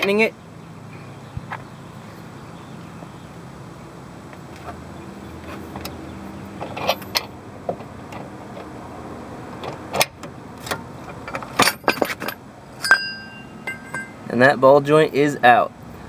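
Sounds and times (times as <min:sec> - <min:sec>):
metal clicks and creaks: 0:06.6 - 0:08.7, 0:09.6 - 0:14.2.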